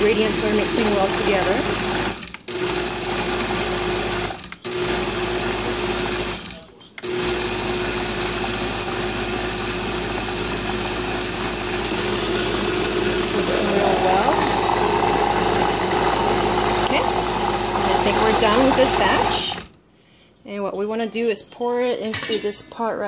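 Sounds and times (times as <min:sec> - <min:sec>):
blender motor pureeing soup: 0:00.0 - 0:19.7.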